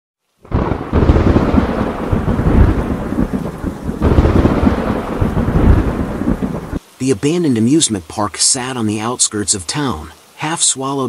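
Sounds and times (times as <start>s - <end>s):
steady rain: 0.2s - 11.0s
rolling thunder: 0.4s - 6.8s.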